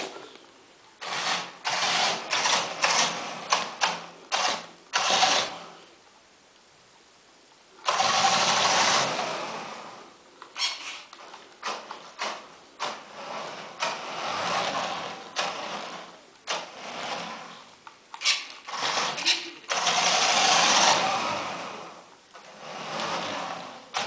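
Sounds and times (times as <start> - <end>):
toy truck motor whirring: 1.0 - 5.8, 7.8 - 24.0.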